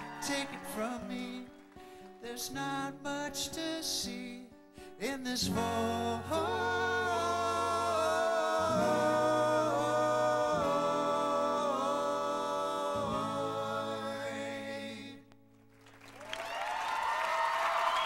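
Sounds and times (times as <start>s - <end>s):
audience applause: 0.0s - 2.1s, 15.7s - 18.0s
men singing a cappella harmony: 5.0s - 15.3s.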